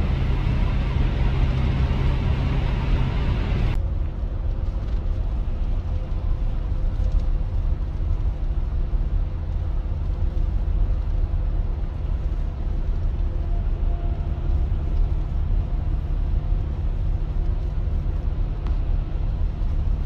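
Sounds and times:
faint steady hum: 0:00.0 - 0:03.8
road and engine rumble in car: 0:00.0 - 0:20.0.

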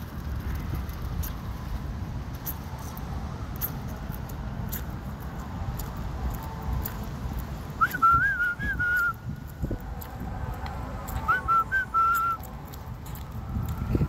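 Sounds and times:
person whistling: 0:07.8 - 0:09.2, 0:11.3 - 0:12.4.

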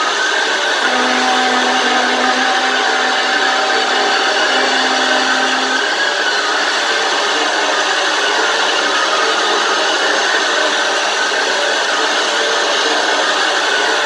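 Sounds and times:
faint held tones: 0:00.8 - 0:06.0.

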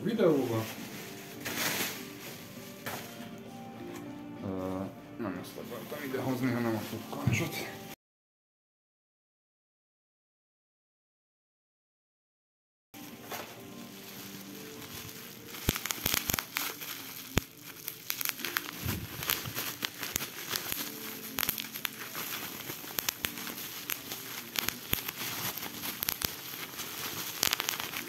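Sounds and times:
bubble wrap popping: 0:00.0 - 0:04.8, 0:05.5 - 0:07.7, 0:13.0 - 0:28.0
plastic crinkling: 0:00.0 - 0:04.8, 0:05.4 - 0:07.8, 0:13.0 - 0:28.0.

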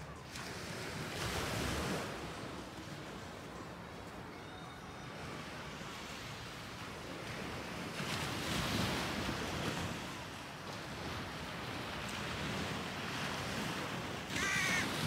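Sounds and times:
waves washing onto shore: 0:00.0 - 0:04.3, 0:05.1 - 0:15.0
bird call: 0:14.3 - 0:15.0.

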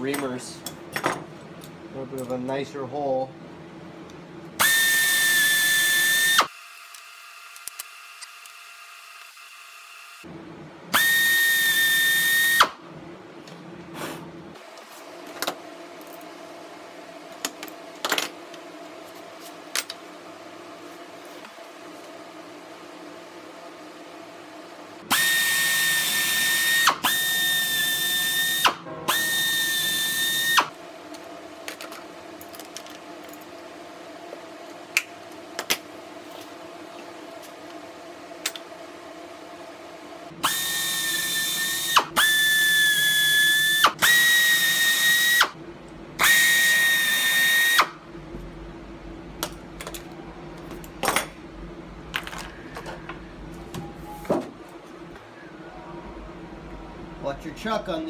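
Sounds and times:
pneumatic air drill whining: 0:04.6 - 0:10.2, 0:10.9 - 0:12.8, 0:25.1 - 0:30.7, 0:40.4 - 0:45.6, 0:46.2 - 0:48.0.

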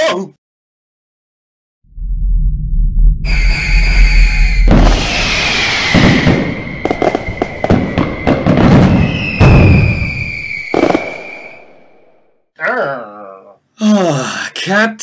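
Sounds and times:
high whistle: 0:03.2 - 0:12.0
fireworks bangs: 0:03.3 - 0:12.2
fireworks crackling and popping: 0:04.6 - 0:12.0.

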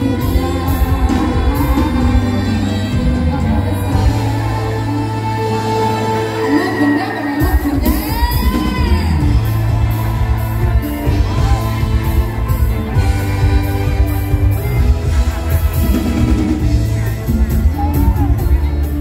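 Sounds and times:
heavy bass: 0:00.0 - 0:06.7, 0:07.4 - 0:19.0
person singing: 0:00.0 - 0:14.6
loud music over outdoor speakers: 0:00.0 - 0:19.0
steady drum beat: 0:07.4 - 0:19.0.

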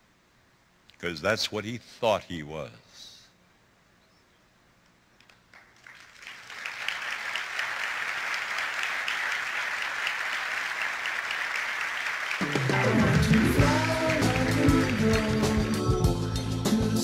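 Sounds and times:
audience applause: 0:05.5 - 0:16.1.

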